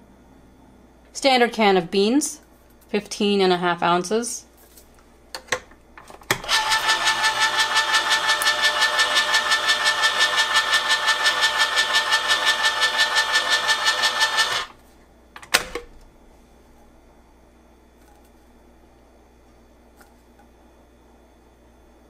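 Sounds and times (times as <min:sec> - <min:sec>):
electric can opener motor whining: 0:06.3 - 0:14.8.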